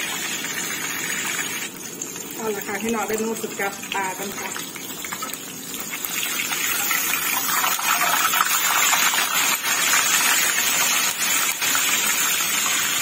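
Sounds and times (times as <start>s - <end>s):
fish sizzling in hot oil: 0.0s - 13.0s.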